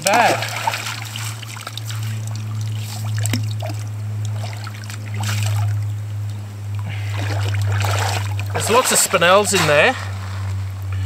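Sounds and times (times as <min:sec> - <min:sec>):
running water: 0:00.0 - 0:10.9
water splashing and trickling: 0:00.0 - 0:10.9
steady low hum: 0:00.0 - 0:11.0
shovel scraping gravel: 0:08.6 - 0:10.6.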